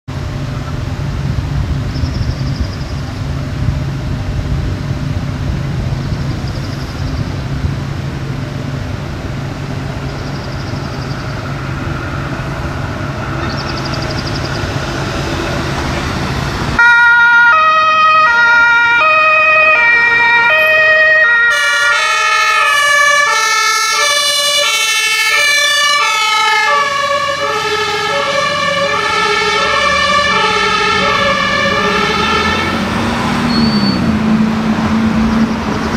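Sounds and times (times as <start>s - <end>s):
fire engine diesel engine: 0.0s - 35.9s
two-tone siren horn: 16.8s - 34.2s.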